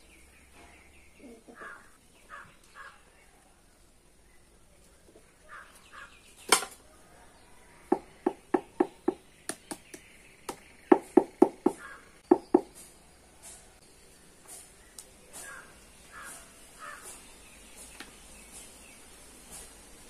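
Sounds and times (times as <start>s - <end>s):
crows cawing: 1.5s - 3.0s, 5.4s - 6.2s, 11.7s - 12.2s, 15.4s - 17.2s
sharp knocks: 7.9s - 12.8s.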